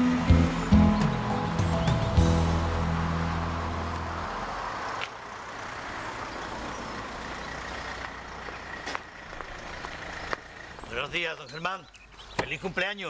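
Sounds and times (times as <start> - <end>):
music chord: 0.0 - 4.6
car engine idling: 0.0 - 11.4.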